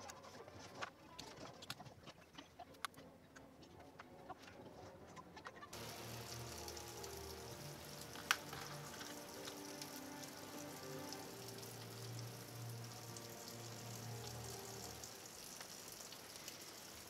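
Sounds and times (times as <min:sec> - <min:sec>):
steady hiss with low tones: 0:05.8 - 0:17.0.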